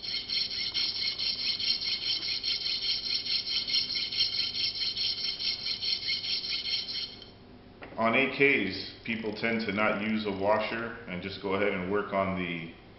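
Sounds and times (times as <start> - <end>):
washer rasping on metal file: 0.0 - 7.3.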